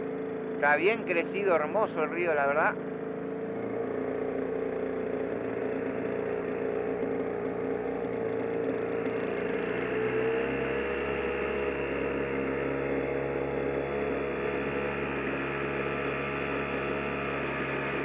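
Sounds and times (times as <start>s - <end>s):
outboard motor running: 0.0s - 18.0s.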